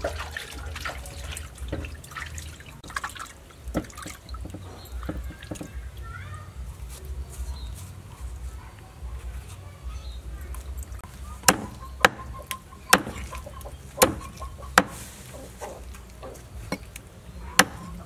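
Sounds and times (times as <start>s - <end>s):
water sloshing in metal bowl: 0.0s - 6.0s.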